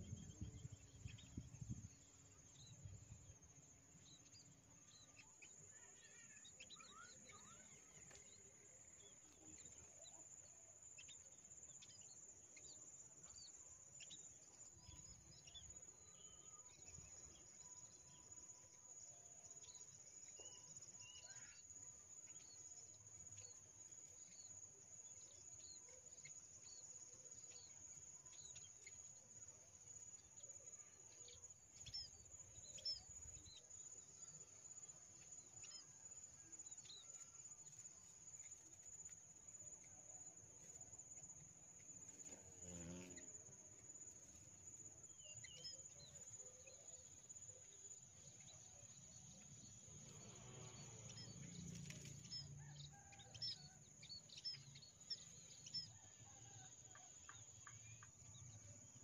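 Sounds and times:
small birds chirping: 0.0s - 59.0s
high-pitched insect drone: 42.2s - 43.4s.

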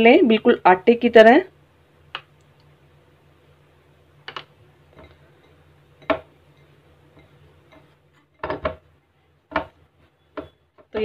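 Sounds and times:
hand mixing dough in glass bowl: 4.1s - 11.0s.

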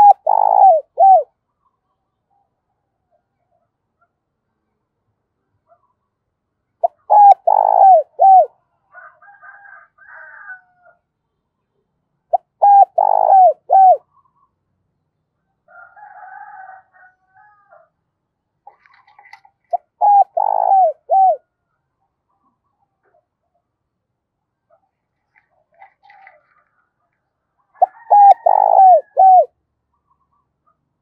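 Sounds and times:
dove cooing: 0.0s - 1.3s, 6.8s - 8.6s, 12.3s - 14.1s, 18.7s - 21.5s, 25.7s - 26.7s, 27.7s - 29.6s.

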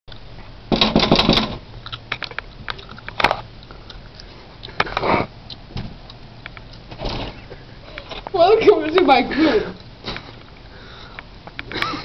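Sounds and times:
knocking on a door: 0.7s - 1.6s.

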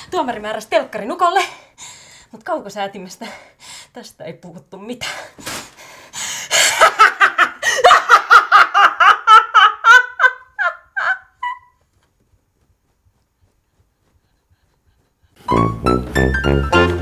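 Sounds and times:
woman laughing hysterically: 6.5s - 11.9s.

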